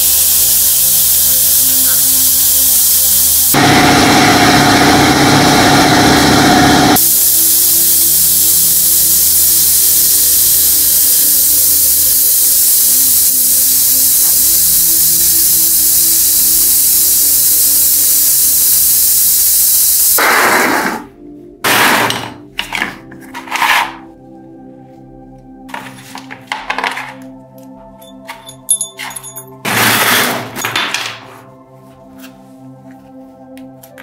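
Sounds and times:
loud steady spray hiss: 0.0s - 4.1s, 7.0s - 20.6s.

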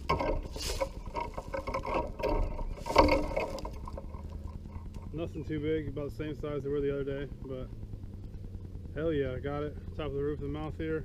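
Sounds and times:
handling rustling near microphone: 0.0s - 5.0s
low wind rumble: 0.0s - 11.0s.

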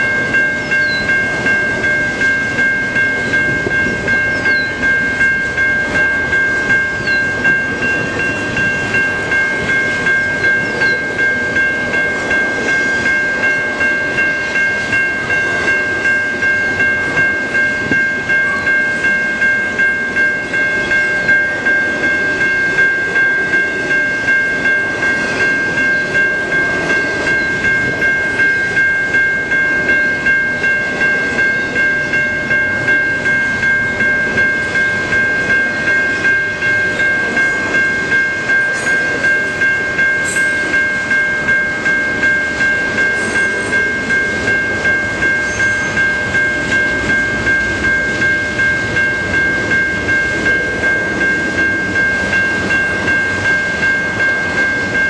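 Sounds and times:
freight train rumbling and clattering: 0.0s - 55.0s
level crossing bell ringing: 0.0s - 55.0s.

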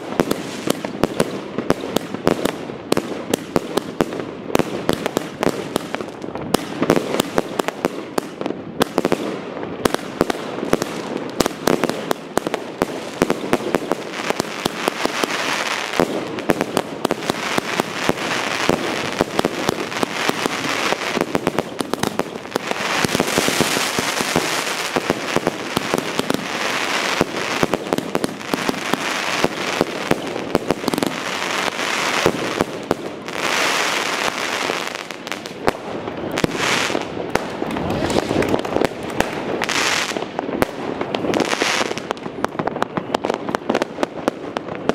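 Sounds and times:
firework crackling hiss: 10.1s - 42.8s.

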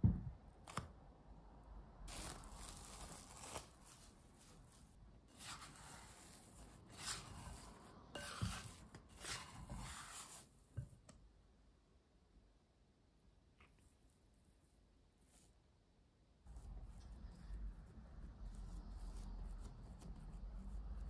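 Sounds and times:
dough scraper scraping glass bowl: 6.9s - 10.4s.

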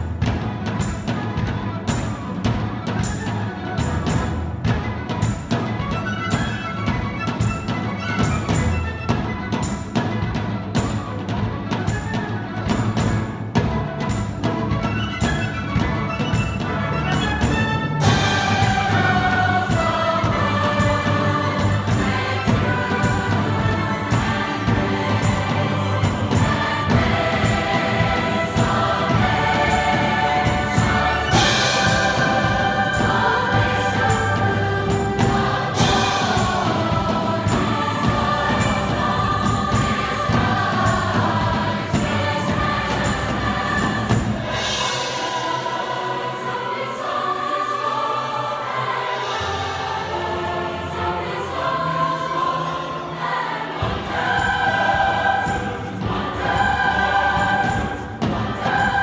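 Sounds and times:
large mixed choir singing: 0.0s - 59.0s
string orchestra: 0.0s - 59.0s.

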